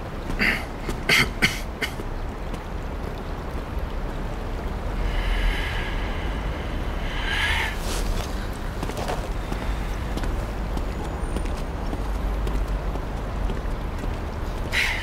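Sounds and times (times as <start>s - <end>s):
low wind rumble: 0.0s - 15.0s
footsteps on stone steps: 0.1s - 3.7s, 7.8s - 14.7s.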